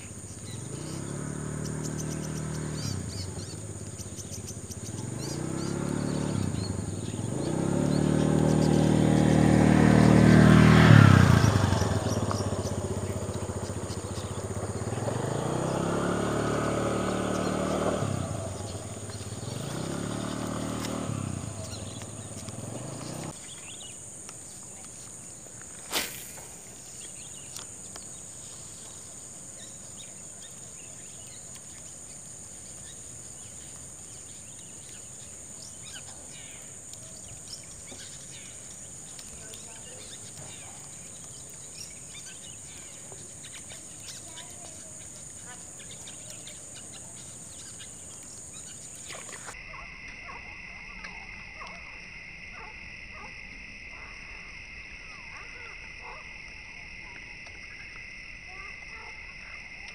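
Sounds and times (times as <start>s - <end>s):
high insect drone: 0.0s - 59.9s
motorcycle engine pulling away: 0.2s - 23.9s, 29.2s - 49.6s.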